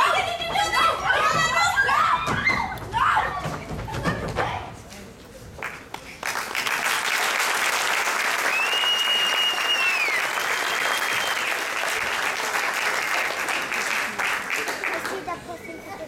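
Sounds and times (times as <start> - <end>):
audience applause: 5.6 - 15.3
person whistling: 8.5 - 11.5.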